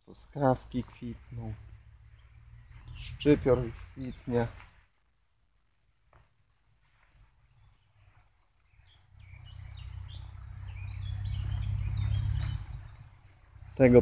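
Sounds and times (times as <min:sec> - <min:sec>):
birds chirping: 0:00.0 - 0:05.1, 0:06.0 - 0:14.0
low rumble: 0:09.2 - 0:13.8.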